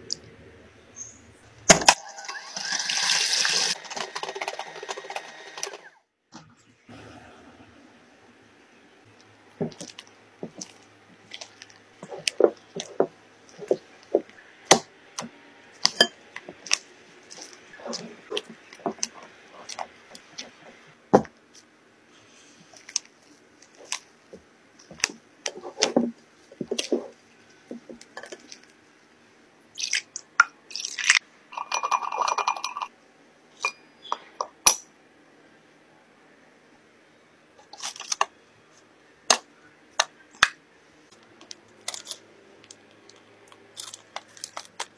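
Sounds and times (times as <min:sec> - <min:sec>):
spatula stirring thick batter: 0:09.6 - 0:21.7.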